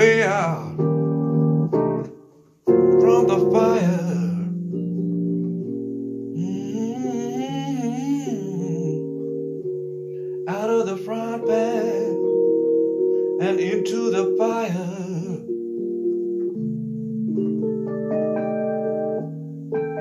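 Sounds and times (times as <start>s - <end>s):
man singing: 0.0s - 0.8s, 2.9s - 4.6s, 6.4s - 9.2s, 10.4s - 12.3s, 13.4s - 15.5s
electric piano chords: 0.0s - 20.0s.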